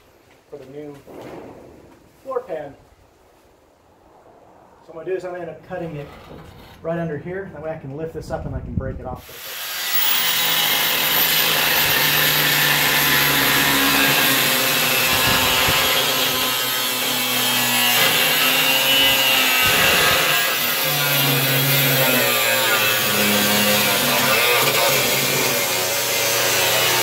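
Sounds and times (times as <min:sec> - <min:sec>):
angle grinder cutting steel: 0:09.2 - 0:27.0.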